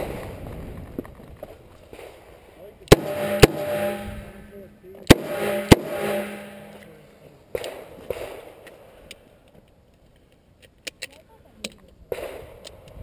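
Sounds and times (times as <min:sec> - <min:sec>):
revolver gunshot: 0:02.9 - 0:06.9.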